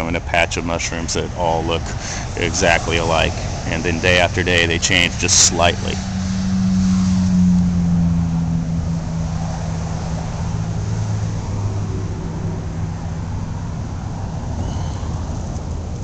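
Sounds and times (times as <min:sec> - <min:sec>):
engine humming: 0:00.0 - 0:16.0.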